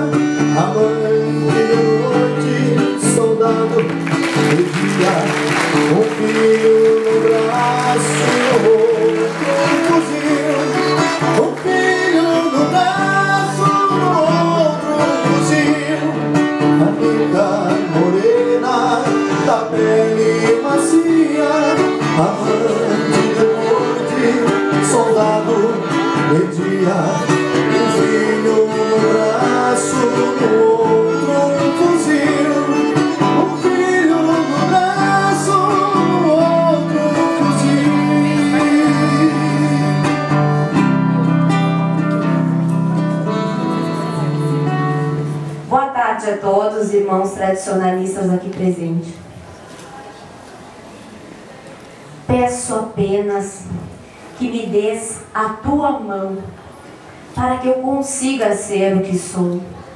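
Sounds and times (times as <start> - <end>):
guitar music with melody: 0.0 - 46.4.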